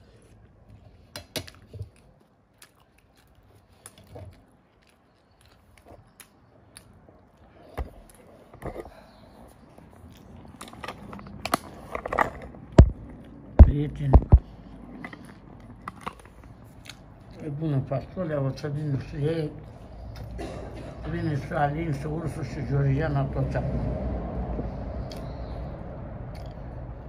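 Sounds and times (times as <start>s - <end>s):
person chewing food: 0.0s - 18.2s, 19.6s - 20.4s, 24.6s - 25.6s, 26.2s - 27.0s.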